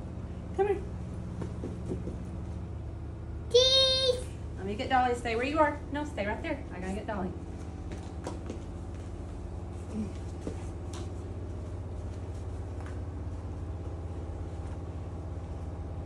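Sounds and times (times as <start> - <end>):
low background hum: 0.0 - 16.0.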